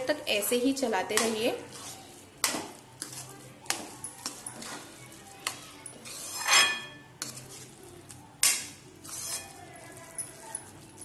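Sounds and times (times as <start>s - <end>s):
spoon scraping pan: 0.8s - 11.0s
spoon clinking on metal: 5.8s - 7.0s.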